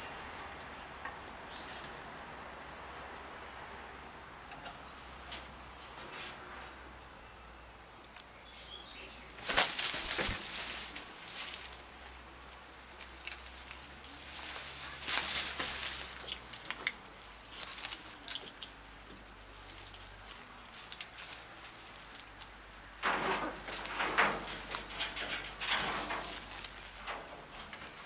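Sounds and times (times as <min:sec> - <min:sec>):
macaws flapping wings: 0:09.4 - 0:11.9.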